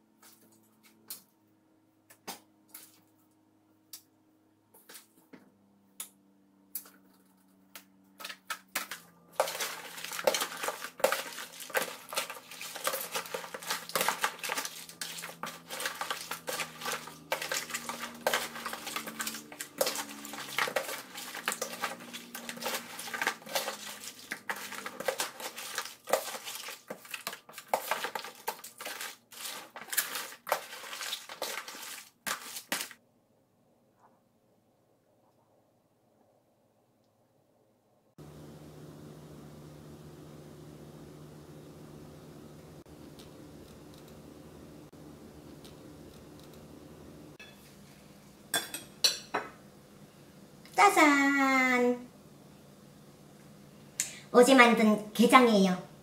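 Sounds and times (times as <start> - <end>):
crab shells clattering in paste: 8.6 - 33.0.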